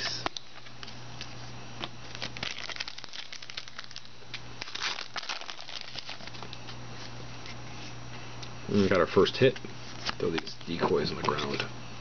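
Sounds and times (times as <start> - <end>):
plastic wrapper crinkling: 1.8 - 6.8.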